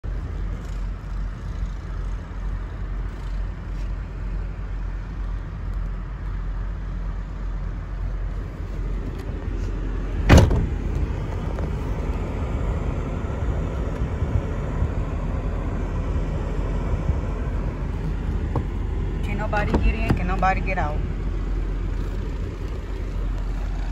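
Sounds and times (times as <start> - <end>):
low rumble inside a car: 0.0 - 23.9
sharp loud thud: 10.3 - 10.8.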